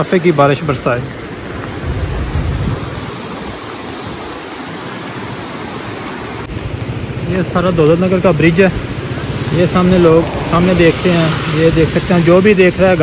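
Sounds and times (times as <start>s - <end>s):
floodwater rushing: 0.0s - 13.0s
low rumble: 8.9s - 12.2s.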